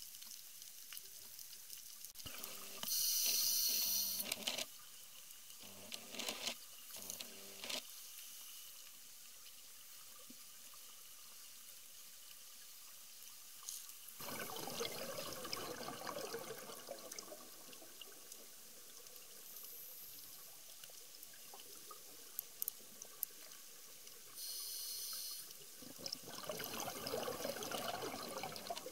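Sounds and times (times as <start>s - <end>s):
underwater ambience: 0.2s - 4.6s, 13.7s - 28.9s
high hiss: 2.5s - 4.3s, 24.4s - 25.6s
regulator bubbles rushing out: 14.2s - 18.4s, 25.8s - 28.9s
faint clicks: 19.0s - 25.6s.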